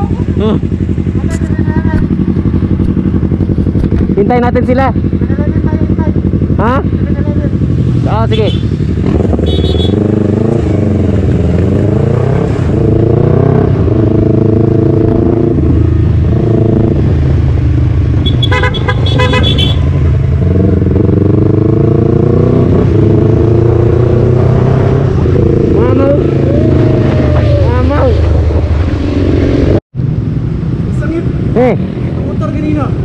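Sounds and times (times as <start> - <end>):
motorcycle engine revving: 0.0 - 33.0
horn toots: 9.3 - 10.2, 18.2 - 20.0.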